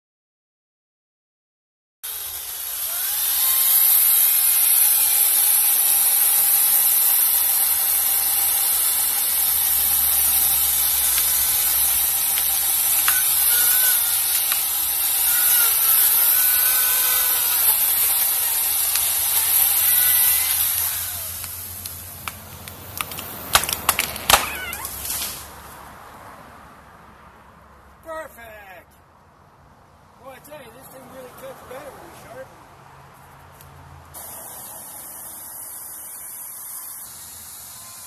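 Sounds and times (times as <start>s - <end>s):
power saw cutting tree trunk: 2.0s - 25.6s, 34.2s - 38.0s.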